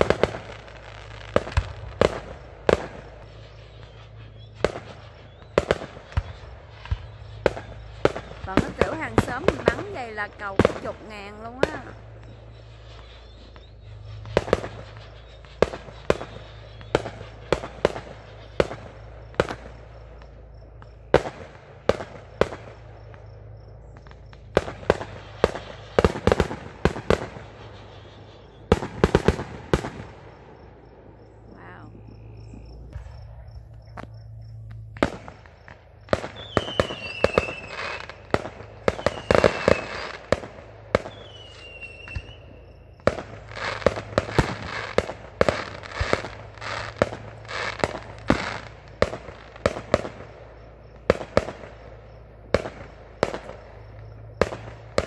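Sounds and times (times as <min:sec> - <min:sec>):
falling firework whistles: 0:00.0 - 0:55.0
fireworks bangs and pops: 0:00.0 - 0:55.0.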